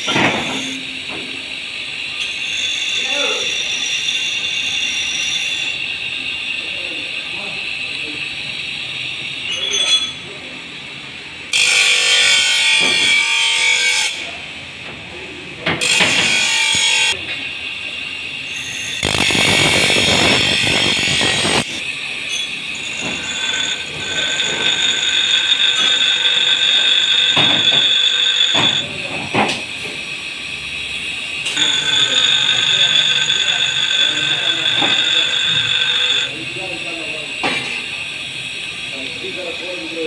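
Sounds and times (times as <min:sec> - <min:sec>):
workshop machinery running: 0:00.0 - 0:40.0
high whine: 0:18.9 - 0:29.0, 0:29.8 - 0:40.0.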